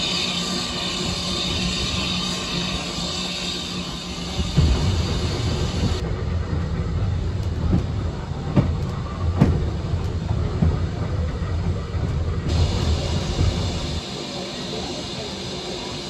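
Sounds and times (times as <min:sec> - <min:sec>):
railway carriage rumble: 0:00.0 - 0:16.0.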